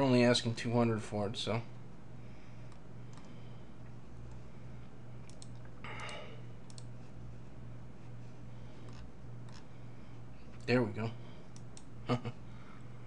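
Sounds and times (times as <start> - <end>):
steady low hum: 0.0 - 13.0
computer mouse clicking: 2.7 - 3.4, 5.2 - 6.9, 8.8 - 9.7.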